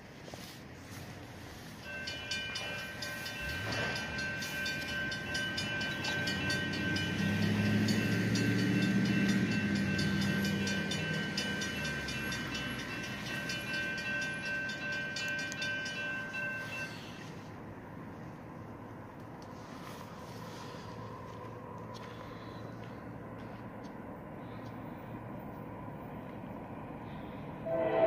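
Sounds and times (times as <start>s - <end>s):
diesel train rumble: 0.0s - 28.0s
railroad crossing bell ringing: 0.4s - 18.4s, 27.1s - 28.0s.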